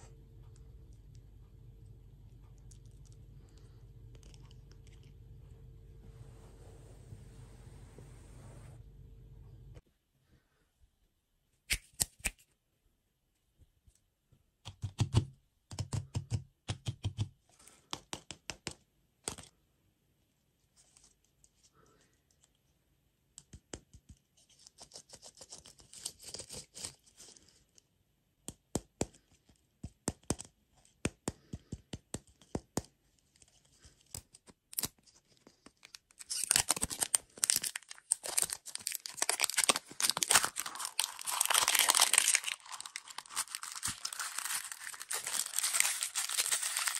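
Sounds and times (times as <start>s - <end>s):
plastic wrapper rustling: 34.8s - 46.9s
plastic wrapper tearing: 35.7s - 46.9s.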